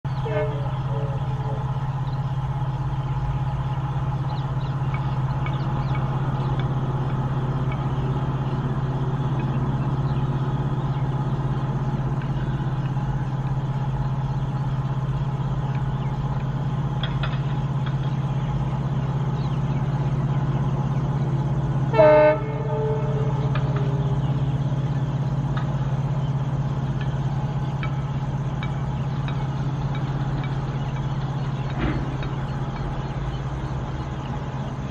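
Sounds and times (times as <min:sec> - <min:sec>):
diesel locomotive engine droning: 0:00.0 - 0:34.9
locomotive horn blast: 0:00.1 - 0:01.9, 0:21.7 - 0:25.1.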